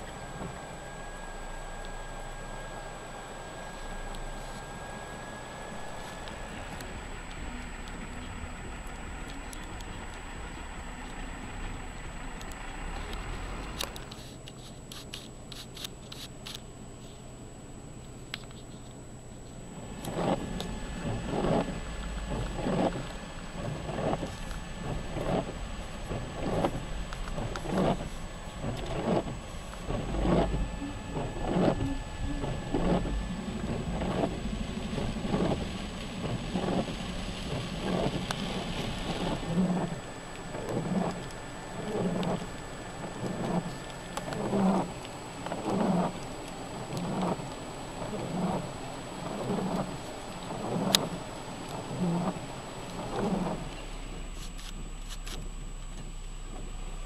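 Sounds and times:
rain on wet pavement: 0.0 - 16.6, 19.5 - 57.0
car engine rumble: 0.0 - 57.0.

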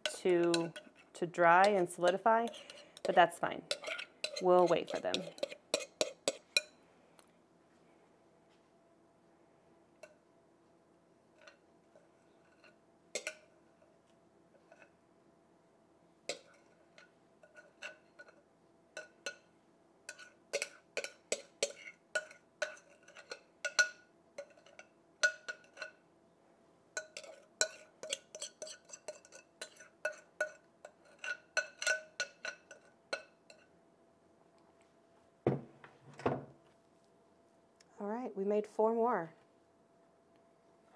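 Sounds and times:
metal spoon scraping glass bowl: 0.0 - 6.7, 20.1 - 26.0, 27.0 - 33.7
dull knock: 35.5 - 36.4.

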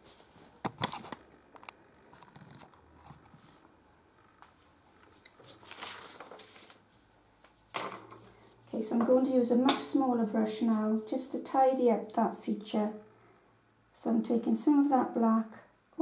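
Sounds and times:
soft rustle: 2.1 - 7.7.

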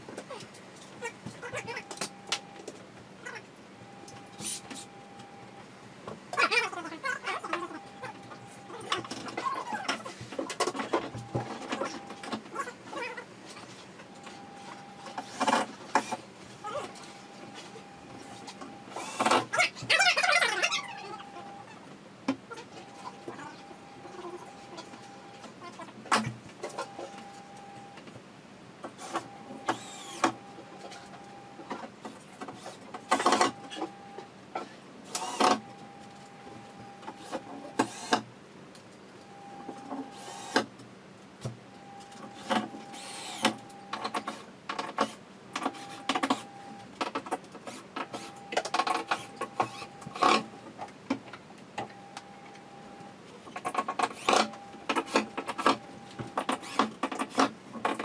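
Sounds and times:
cordless screwdriver whirring: 29.0 - 30.4.

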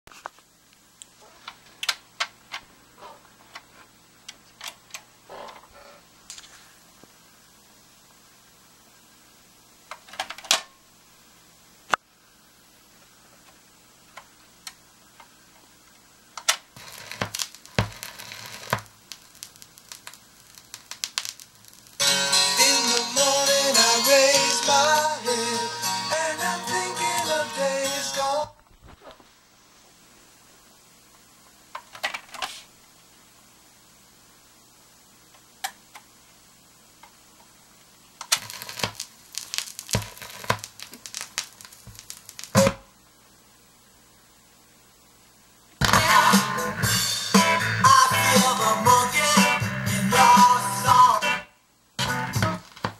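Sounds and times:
record hiss: 0.0 - 52.9
vinyl crackle and pops: 0.1 - 7.2, 9.8 - 10.8, 11.8 - 12.1, 12.8 - 25.2, 26.8 - 33.5, 34.9 - 44.0, 45.6 - 52.9
record changer clicks and crackles: 1.0 - 2.7, 9.9 - 10.7, 16.4 - 22.0, 31.7 - 32.6, 35.3 - 36.1, 37.0 - 42.8.

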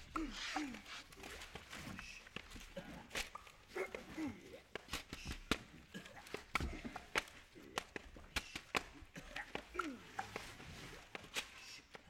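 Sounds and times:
newspaper snaps and slaps: 4.8 - 9.9.

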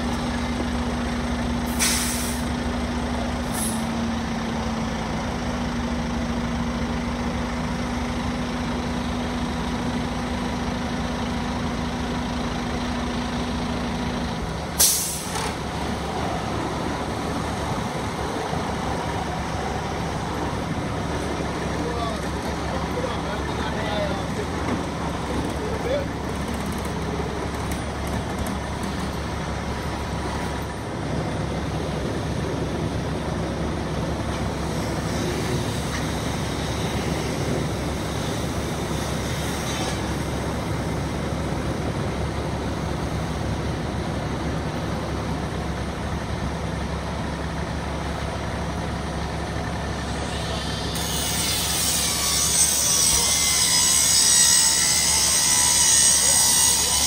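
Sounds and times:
diesel engine droning: 0.0 - 57.0
loud hiss: 1.7 - 2.5, 14.8 - 15.4.

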